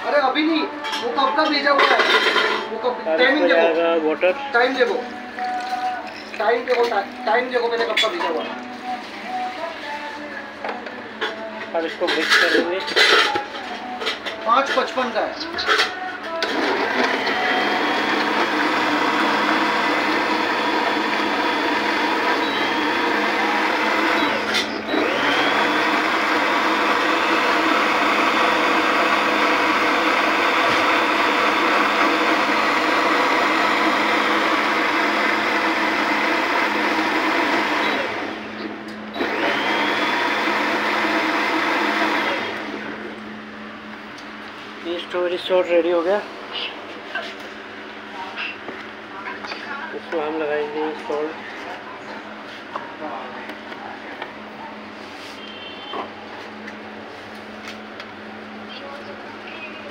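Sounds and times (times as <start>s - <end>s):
blender motor whining: 16.4s - 43.3s.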